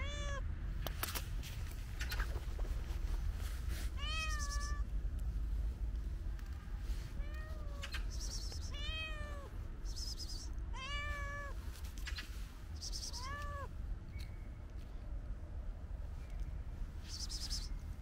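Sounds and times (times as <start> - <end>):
cat meowing: 0.0 - 0.4, 4.0 - 4.9, 7.2 - 7.8, 8.7 - 9.5, 10.7 - 11.6, 13.0 - 13.7.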